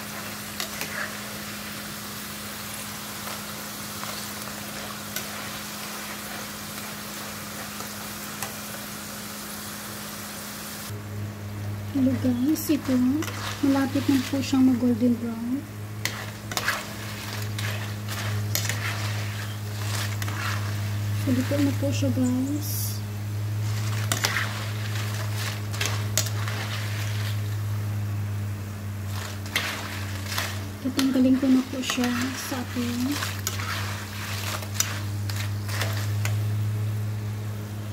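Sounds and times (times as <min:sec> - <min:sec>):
potato slices deep-frying: 0:00.0 - 0:11.0, 0:11.6 - 0:37.9
steady low hum: 0:10.8 - 0:37.9.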